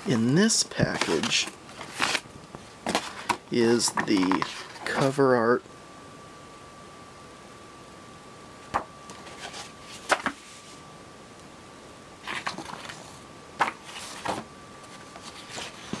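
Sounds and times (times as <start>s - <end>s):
paper rustling: 0.0s - 2.2s, 2.8s - 5.2s, 12.2s - 16.0s.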